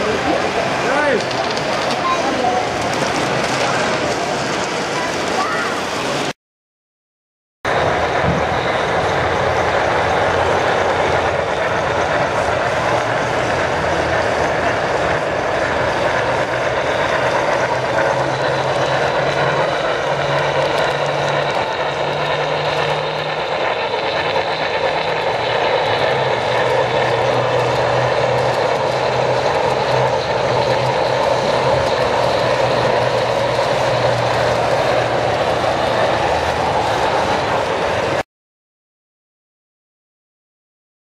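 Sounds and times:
low hum: 7.7 - 38.2.

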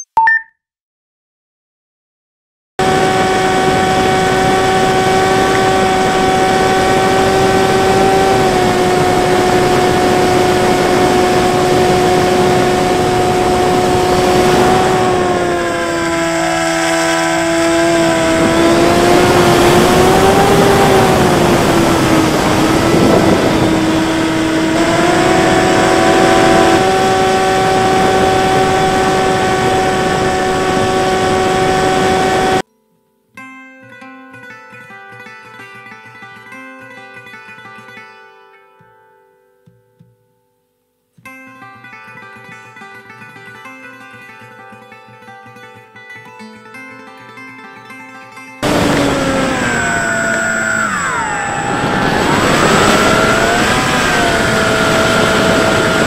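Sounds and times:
electric motor high hum: 2.8 - 32.6, 48.6 - 56.0
wind rushing over airframe: 17.8 - 32.2, 48.6 - 56.0.

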